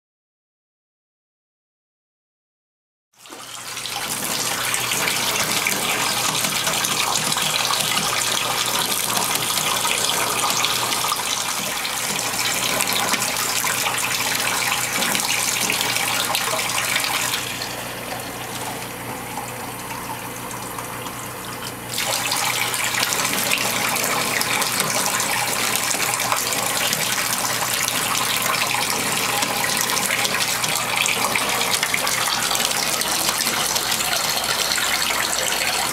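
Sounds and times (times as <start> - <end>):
faucet water rushing into bathtub: 3.2 - 35.9.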